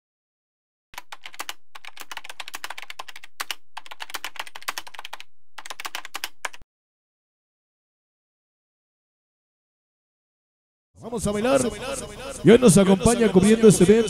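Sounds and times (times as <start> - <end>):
computer keyboard typing: 1.0 - 6.6.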